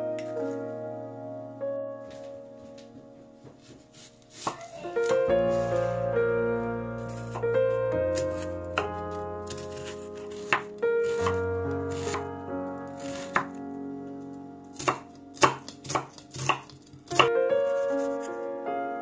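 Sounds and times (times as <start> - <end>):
piano music: 0.0 - 19.0
knife chopping on cutting board: 3.6 - 5.2, 9.5 - 12.2, 13.0 - 13.5, 14.8 - 18.1.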